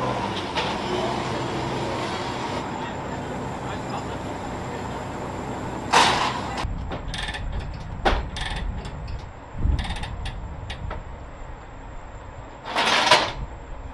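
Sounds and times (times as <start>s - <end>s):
loud noisy rushes: 0.0s - 6.8s
ratchet chain binder: 7.0s - 10.8s.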